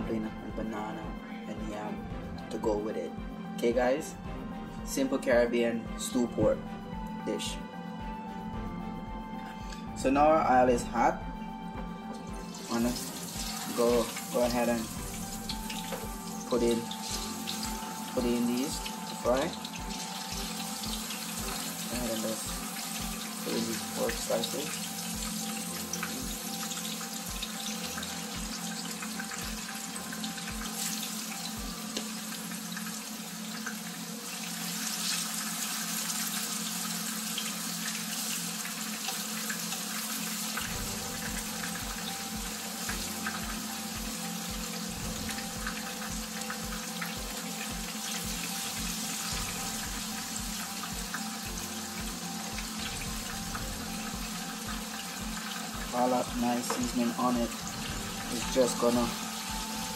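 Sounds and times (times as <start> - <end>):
meat sizzling in a frying pan: 12.4 - 59.9.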